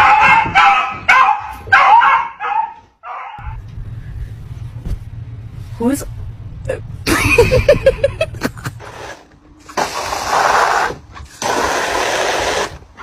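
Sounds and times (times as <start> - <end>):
hose nozzle spraying plastic pool: 8.8 - 12.9.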